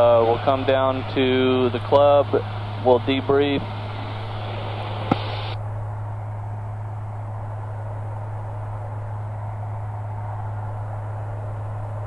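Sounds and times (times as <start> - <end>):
aircraft engine and propeller drone: 0.0 - 12.0.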